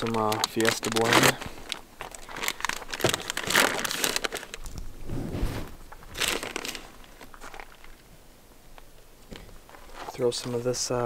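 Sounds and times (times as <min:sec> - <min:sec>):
plastic bags crinkling: 0:00.0 - 0:05.0, 0:05.8 - 0:08.1.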